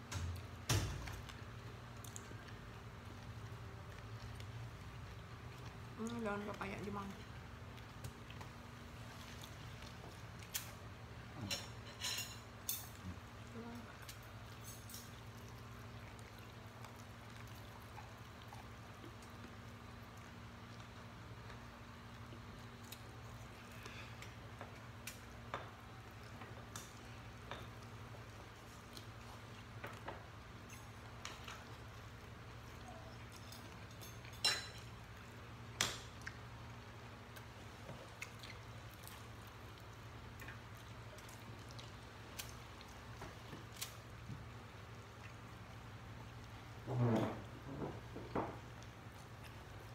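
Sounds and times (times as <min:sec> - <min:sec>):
low steady hum: 0:00.0 - 0:49.9
people chewing and eating: 0:00.0 - 0:49.9
person chewing: 0:36.1 - 0:46.5.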